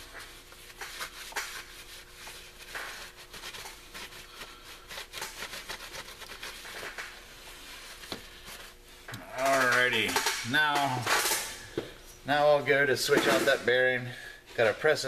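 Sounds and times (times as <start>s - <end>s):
cloth rag rubbing metal: 0.0s - 11.3s.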